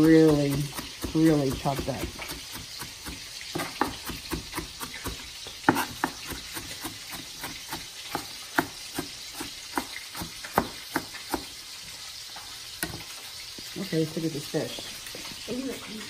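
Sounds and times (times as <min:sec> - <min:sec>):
knife chopping on cutting board: 0:00.0 - 0:11.5.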